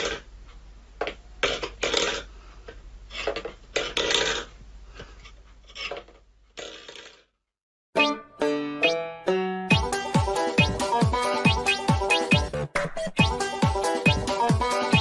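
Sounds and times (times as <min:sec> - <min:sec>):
metal bowl scraping on wooden floor: 0:05.2 - 0:07.2.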